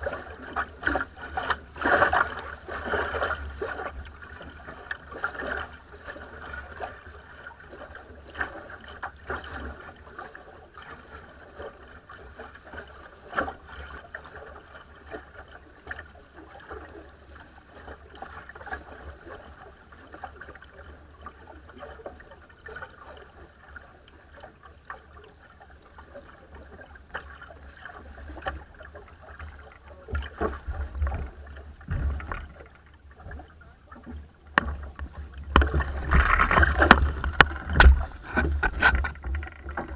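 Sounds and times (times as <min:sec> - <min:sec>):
water rushing along boat hull: 0:00.0 - 0:39.9
bow slapping into waves: 0:30.1 - 0:39.9.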